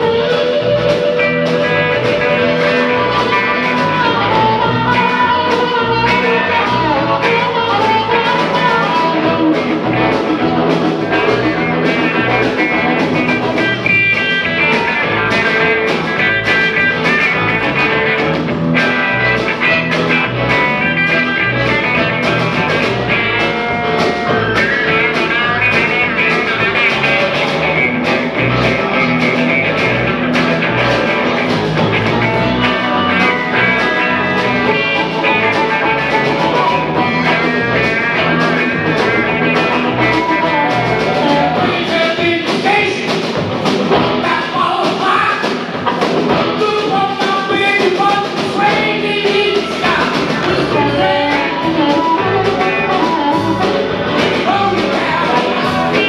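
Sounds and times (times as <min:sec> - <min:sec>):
harmonica solo: 0:00.0 - 0:17.5, 0:49.4 - 0:54.6
blues-rock band playing: 0:00.0 - 0:56.0.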